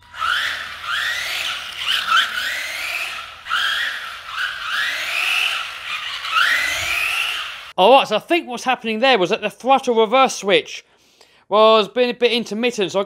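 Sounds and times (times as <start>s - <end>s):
electric motor whining: 0.0s - 7.7s.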